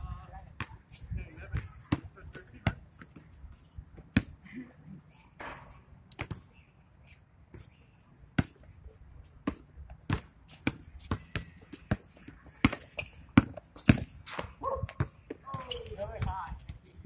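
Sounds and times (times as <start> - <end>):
basketball bouncing on hard court: 9.4 - 16.4.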